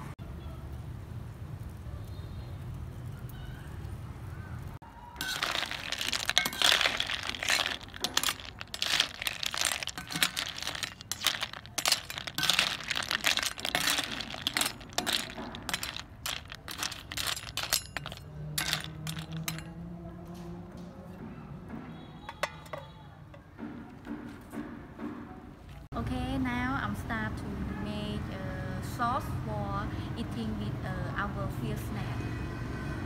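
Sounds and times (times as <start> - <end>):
snail shells clattering in a wok: 5.2 - 19.7.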